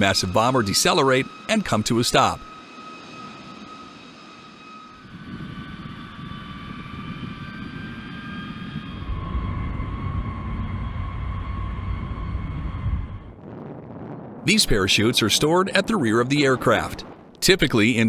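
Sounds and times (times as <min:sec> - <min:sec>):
jet engines whining: 0:00.0 - 0:18.0
low rushing rumble: 0:09.0 - 0:18.0.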